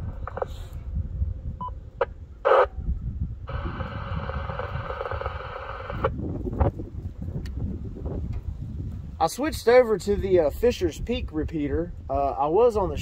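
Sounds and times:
radio static: 2.4 - 2.7, 3.4 - 6.2.

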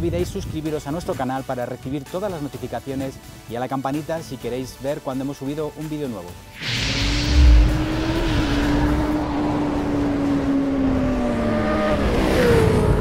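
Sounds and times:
deep boom: 6.6 - 10.8
drone sliding down in pitch: 6.6 - 13.0.

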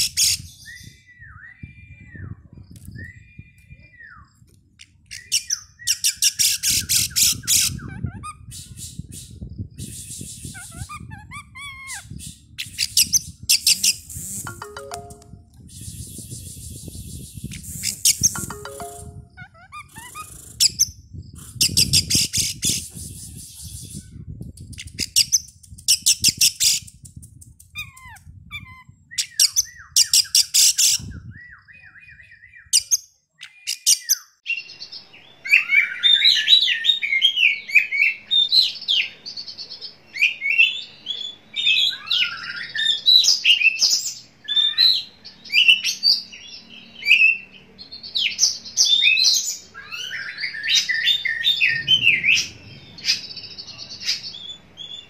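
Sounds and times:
bird whistled song: 0.0 - 4.4, 40.1 - 55.0.

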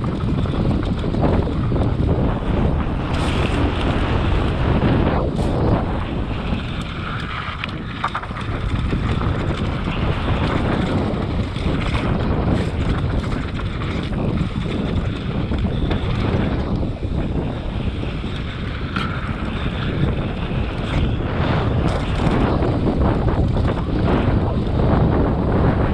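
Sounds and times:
bike clicks and knocks: 0.0 - 25.4
tyres rolling on dirt: 0.0 - 25.9
wind rumbling on microphone: 0.0 - 25.9.

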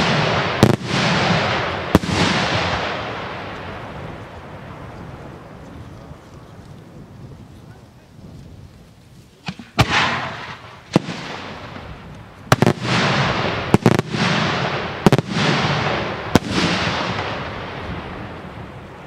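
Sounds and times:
firework shells bursting with echo: 9.4 - 18.8.

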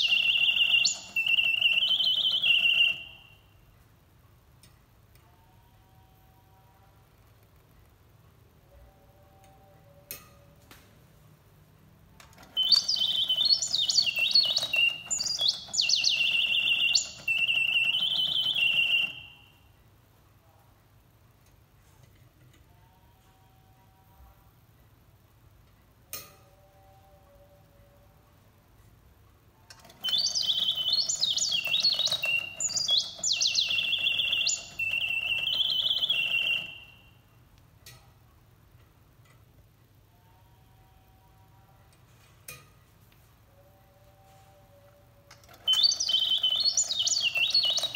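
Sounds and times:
whistled bird song: 0.0 - 3.4, 12.6 - 19.5, 30.0 - 37.1, 45.6 - 47.9.

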